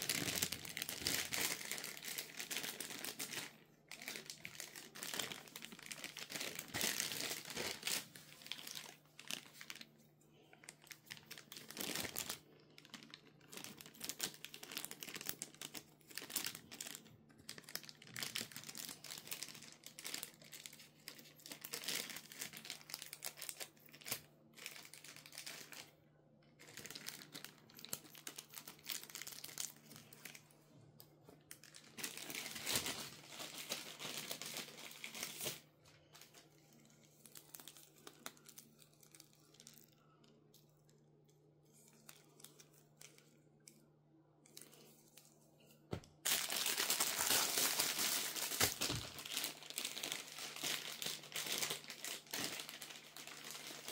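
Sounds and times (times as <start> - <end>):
plastic and paper crinkling: 0.0 - 25.9, 26.6 - 30.5, 31.2 - 40.0, 44.5 - 53.9
packaging tearing: 46.2 - 53.9.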